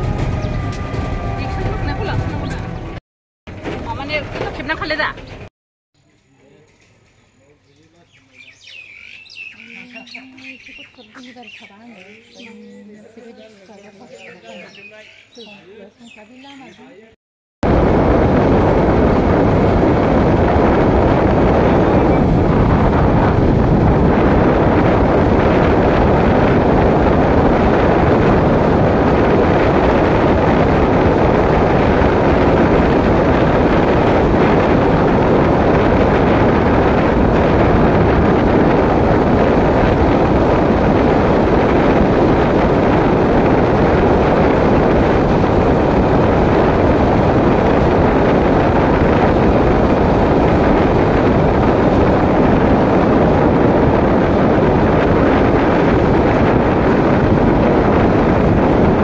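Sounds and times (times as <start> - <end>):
motorbike engine: 0.0 - 5.5
road noise: 0.0 - 5.5, 17.6 - 59.0
wind rush on microphone: 0.0 - 5.5, 17.6 - 59.0.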